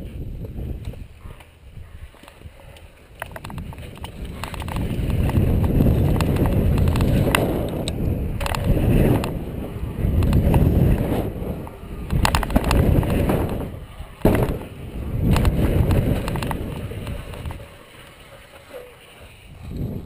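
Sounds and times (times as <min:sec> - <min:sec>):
bike rattling: 0:00.0 - 0:20.0
tyres on packed dirt: 0:00.0 - 0:20.0
wind rushing over a camera: 0:00.0 - 0:20.0
bike thumping onto a wooden jump: 0:12.2 - 0:16.9.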